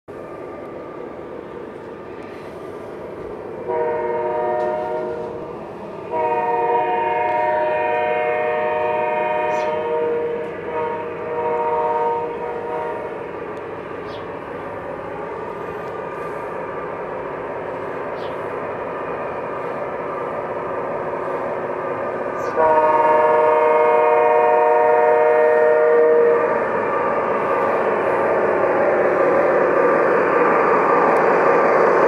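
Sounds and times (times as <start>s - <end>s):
locomotive horn blasts: 3.6s - 5.4s, 6.1s - 13.2s, 22.4s - 26.6s.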